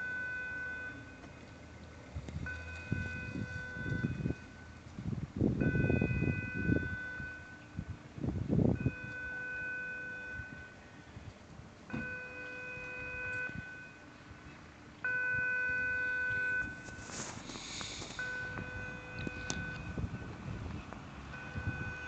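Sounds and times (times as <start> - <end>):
warning horn blasts: 2.5 - 4.6, 5.6 - 7.9, 8.8 - 10.8, 11.9 - 14.1, 15.1 - 20.4, 21.3 - 22.0
short hiss: 16.9 - 18.3.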